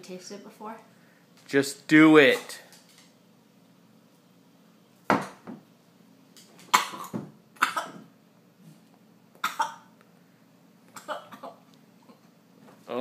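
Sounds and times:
woman coughing and gagging: 6.7 - 8.1, 9.4 - 9.9, 11.0 - 11.6.

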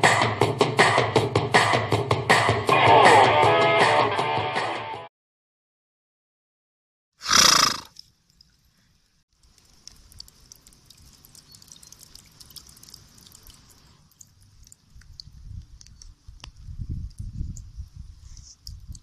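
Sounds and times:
water dripping: 7.9 - 17.8.

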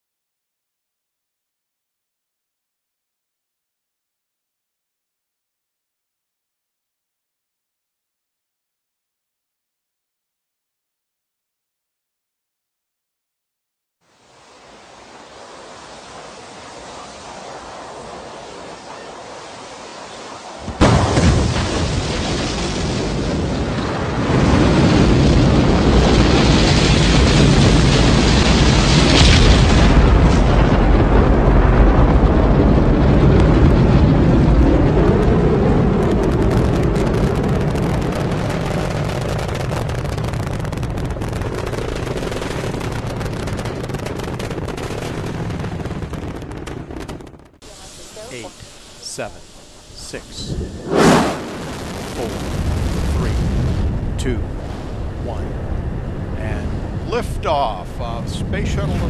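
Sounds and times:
rocket launch roar: 14.5 - 59.0
rising hiss: 47.6 - 52.3.

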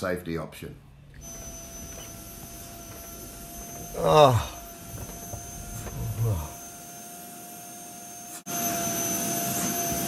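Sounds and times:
vacuum machine running: 0.8 - 10.0
man's voice: 5.8 - 6.6.

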